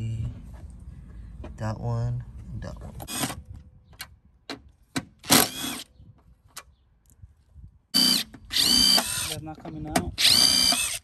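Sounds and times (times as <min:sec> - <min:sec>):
cordless driver motor whirring: 0:08.0 - 0:09.4, 0:10.2 - 0:11.0.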